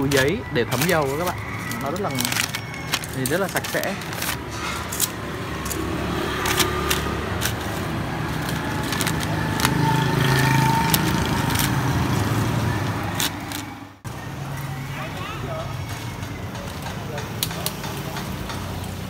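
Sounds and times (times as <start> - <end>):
metal tongs clicking on plastic basket: 0.0 - 11.8
paper bags rustling: 0.0 - 13.9
street traffic: 0.0 - 19.0.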